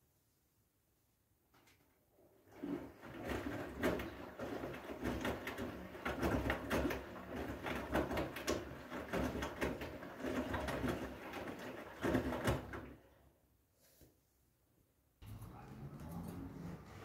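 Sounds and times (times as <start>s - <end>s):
wet laundry tumbling and sloshing: 2.3s - 13.3s
washing machine drum turning: 2.6s - 13.0s.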